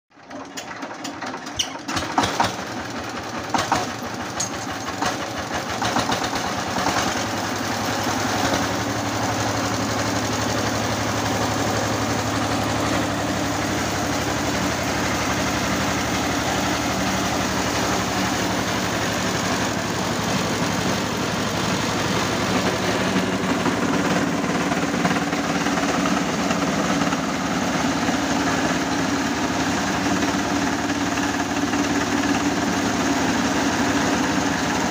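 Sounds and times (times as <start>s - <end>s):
diesel engine knocking: 0.4s - 34.9s.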